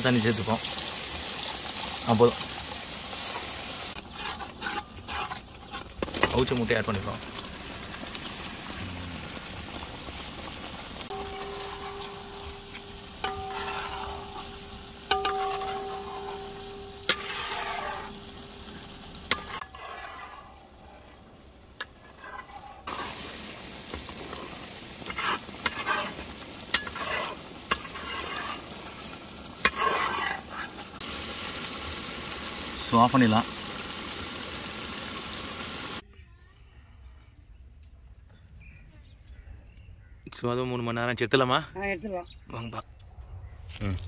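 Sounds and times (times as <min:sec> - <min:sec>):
masala sizzling: 0:00.0 - 0:36.0
metal spatula scraping pan: 0:03.3 - 0:07.0, 0:10.4 - 0:31.0.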